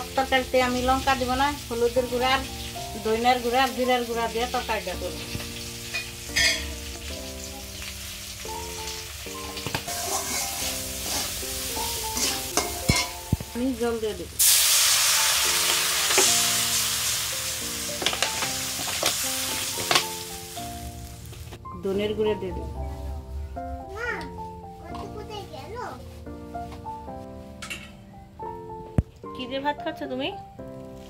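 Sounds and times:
water hissing in hot wok: 0.0 - 21.4
vegetables sizzling in hot oil: 0.0 - 24.9, 30.7 - 31.0
background music with held notes: 0.0 - 31.0
metal spatula scraping a wok: 9.9 - 13.2.

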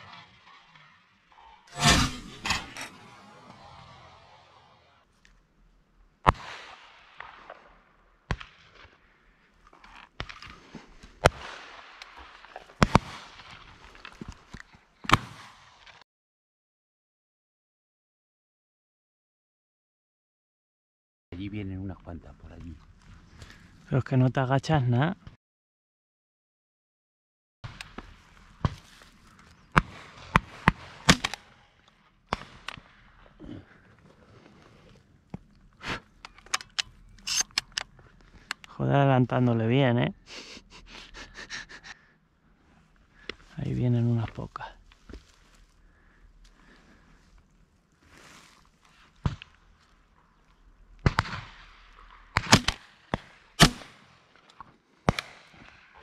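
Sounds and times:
shotgun blasts: 1.7 - 4.4, 6.3 - 8.9, 29.7 - 31.6, 51.0 - 54.2, 55.0 - 56.0
distant gunshots: 29.7 - 31.6, 51.0 - 54.2.

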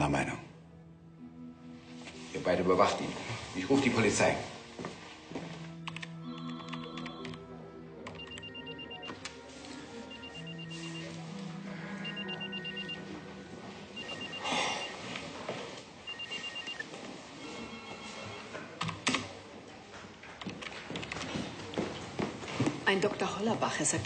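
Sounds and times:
soft background music: 0.0 - 24.0
rapid high ringtone beeps: 12.0 - 13.0, 14.0 - 15.0, 16.1 - 16.8.

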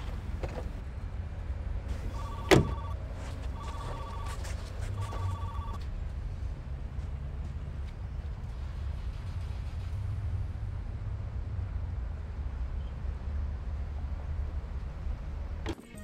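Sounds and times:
phone ringing: 2.1 - 5.8.

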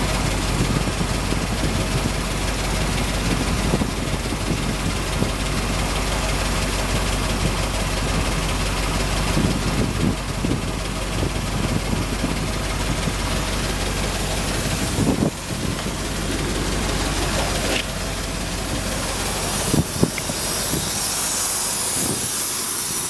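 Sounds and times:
engine idling hum and hiss: 0.0 - 23.0.

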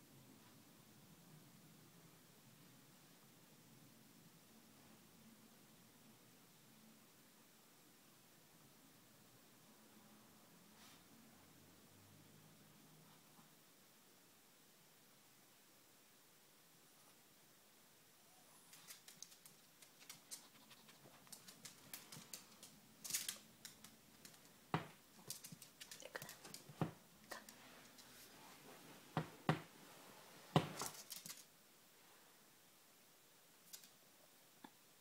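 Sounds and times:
dog claws clicking on wood floor: 18.7 - 28.1, 30.6 - 31.5.

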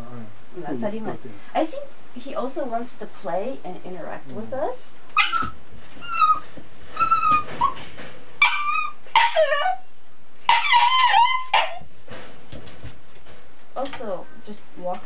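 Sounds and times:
young dog whining and yelping: 5.2 - 11.9.

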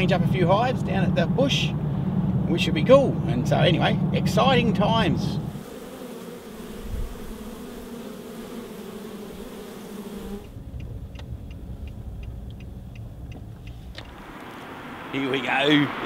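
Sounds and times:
honeybees buzzing: 5.4 - 16.0
faint ticks: 10.4 - 14.5
low rumble: 10.5 - 16.0.

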